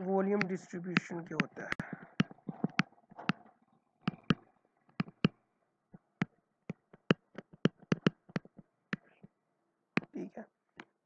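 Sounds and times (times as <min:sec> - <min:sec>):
pen tapping on whiteboard: 0:00.4 - 0:03.4, 0:04.1 - 0:05.4, 0:06.2 - 0:09.1.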